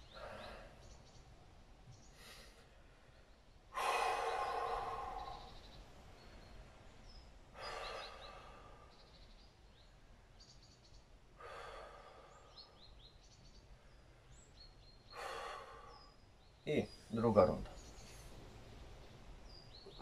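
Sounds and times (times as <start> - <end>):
man breathing slowly: 0.0 - 1.2, 1.9 - 9.8, 11.3 - 14.4, 15.0 - 16.3
small birds chirping: 0.0 - 20.0.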